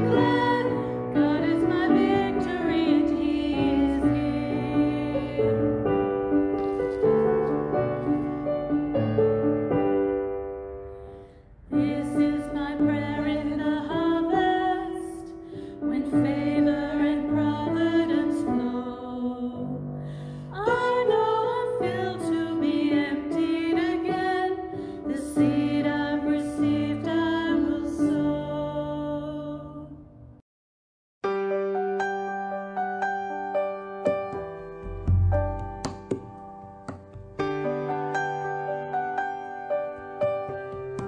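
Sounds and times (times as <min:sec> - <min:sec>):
two women singing: 0:00.0 - 0:06.0, 0:11.7 - 0:30.0
piano: 0:00.0 - 0:30.4, 0:31.2 - 0:41.0.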